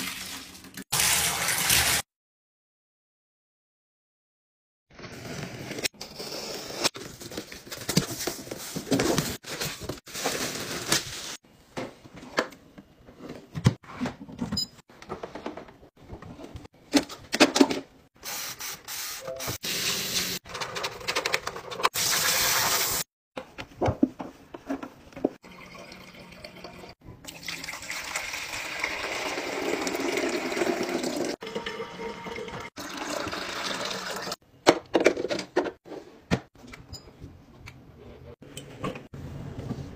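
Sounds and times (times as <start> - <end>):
household cleaning sounds: 5.3 - 11.5, 18.2 - 20.4.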